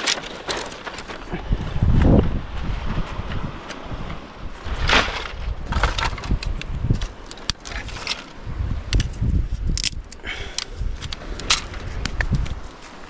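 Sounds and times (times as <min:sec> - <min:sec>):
dry sticks clattering together: 0:00.0 - 0:01.3, 0:04.9 - 0:13.0
wind rumbling on microphone: 0:00.0 - 0:13.0
sticks set down on gravel: 0:04.7 - 0:08.4.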